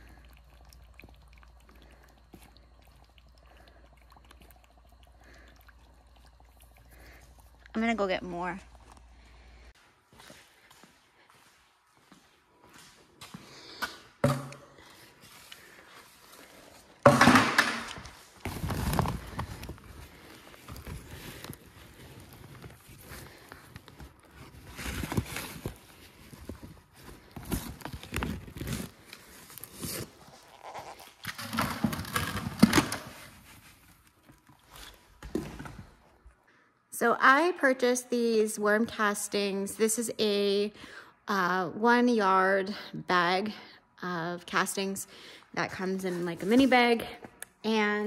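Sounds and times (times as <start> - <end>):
plastic pot scooping castings: 0.0 - 9.7, 14.2 - 36.0
plastic bag rustling and crinkling: 18.0 - 36.0.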